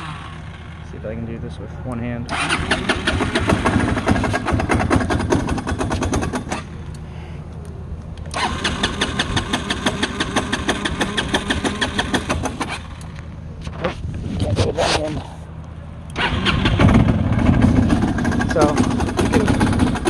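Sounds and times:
engine running unevenly: 0:00.0 - 0:20.0
rapid regular engine ticking: 0:02.3 - 0:07.0, 0:08.3 - 0:13.1, 0:16.1 - 0:20.0.

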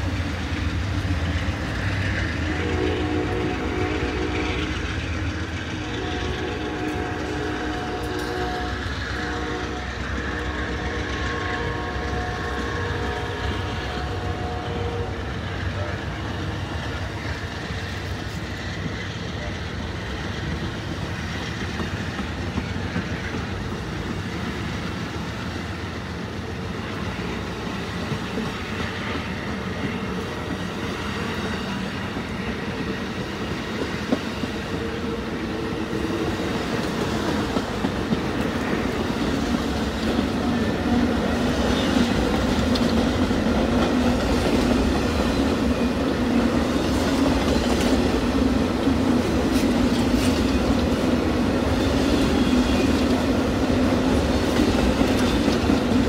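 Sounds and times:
train cars rumbling by: 0:00.0 - 0:56.0
wheels clicking over rail joints: 0:36.5 - 0:56.0.

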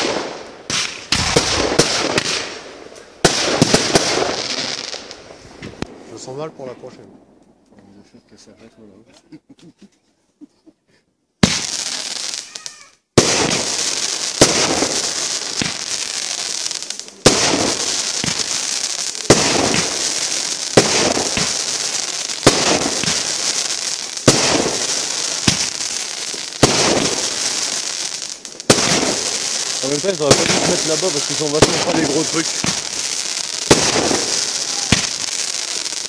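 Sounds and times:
firework bangs: 0:00.0 - 0:07.2, 0:11.4 - 0:36.0
crackling hiss of sparks: 0:11.4 - 0:36.0.

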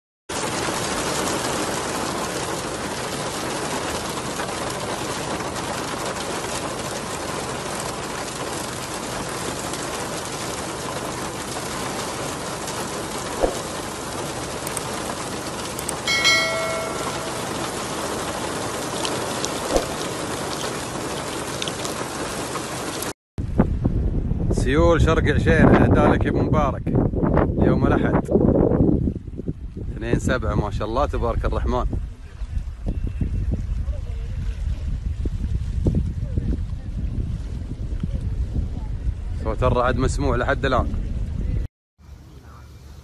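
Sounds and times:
heavy rain pouring: 0:00.3 - 0:23.2
brief high-pitched tone: 0:16.1 - 0:18.0.

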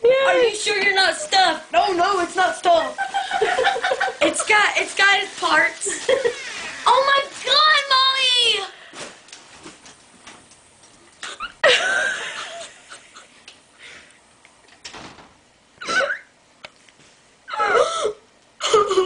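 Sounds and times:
woman sobbing: 0:15.8 - 0:16.3, 0:17.5 - 0:19.0.

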